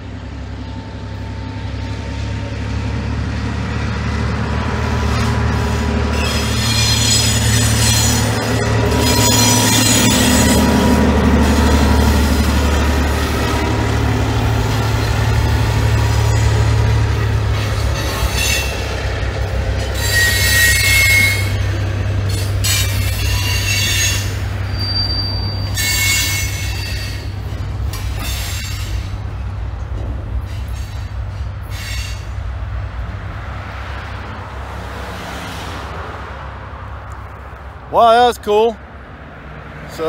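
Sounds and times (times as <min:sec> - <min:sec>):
diesel locomotive drone: 0:00.0 - 0:40.0
freight cars rolling over bridge: 0:00.0 - 0:40.0
freight train wheels squealing: 0:05.1 - 0:13.6, 0:14.6 - 0:29.6, 0:30.3 - 0:32.4.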